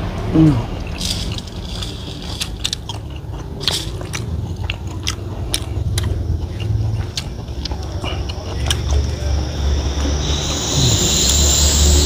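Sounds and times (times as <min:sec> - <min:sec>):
person chewing food: 0:00.7 - 0:11.6
wet smacking clicks: 0:02.4 - 0:09.0.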